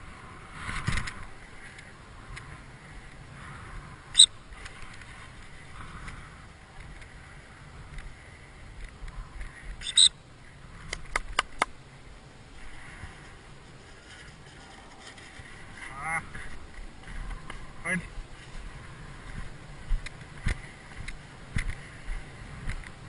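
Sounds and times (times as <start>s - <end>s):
shrill whistle blasts: 9.8s - 10.1s
sharp clicks: 10.9s - 11.8s.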